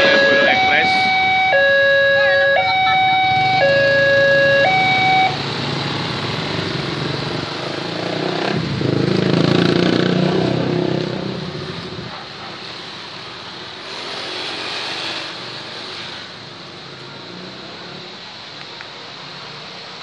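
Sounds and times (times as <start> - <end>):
level crossing two-tone signal: 0.0 - 5.4
motorcycle engines: 0.0 - 20.0.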